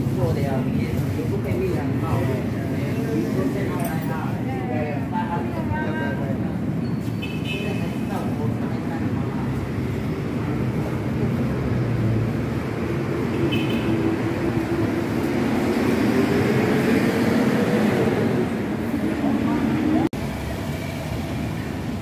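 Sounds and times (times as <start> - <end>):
city traffic noise: 0.0 - 22.0.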